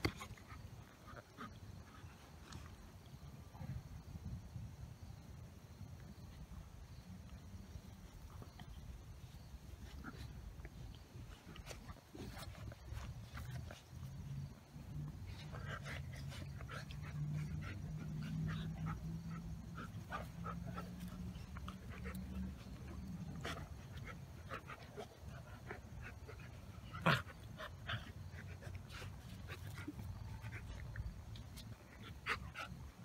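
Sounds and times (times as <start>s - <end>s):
puppy play growl: 9.8s - 31.2s.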